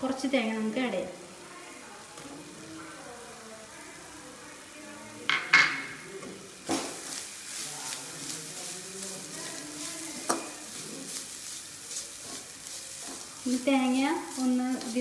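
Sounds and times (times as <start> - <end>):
light sizzle of oil: 0.0 - 15.0
spoon scraping pan: 6.6 - 15.0.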